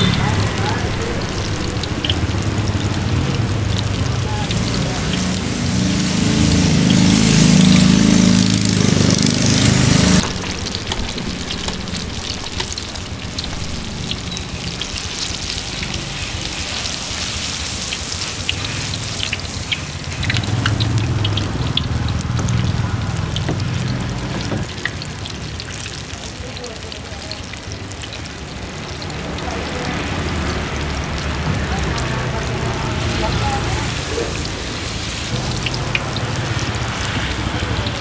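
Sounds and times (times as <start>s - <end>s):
low rumble: 0.0s - 9.0s, 9.7s - 17.6s
food deep-frying in oil: 0.0s - 38.0s.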